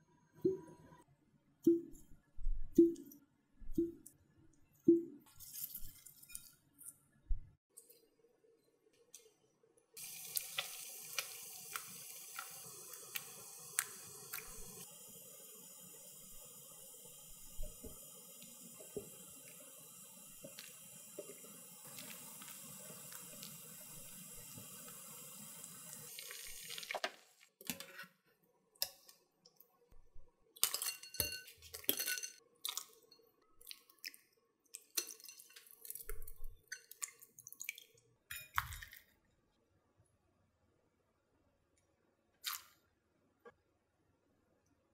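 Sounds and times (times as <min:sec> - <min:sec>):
tap water running into sink: 0:15.5 - 0:27.2.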